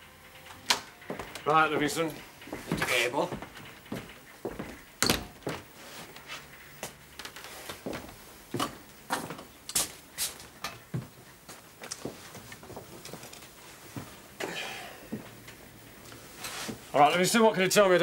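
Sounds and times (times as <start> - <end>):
footsteps on hard floor: 1.0 - 14.2, 16.1 - 16.9.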